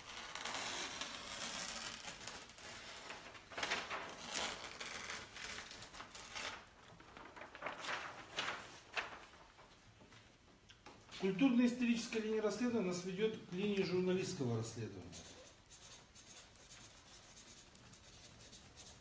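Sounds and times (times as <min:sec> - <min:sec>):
paper tearing and rustling: 0:00.0 - 0:09.6.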